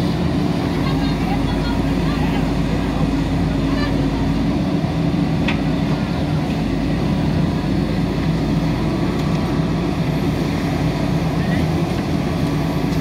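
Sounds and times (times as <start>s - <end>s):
diesel engine running under load: 0.0s - 13.0s.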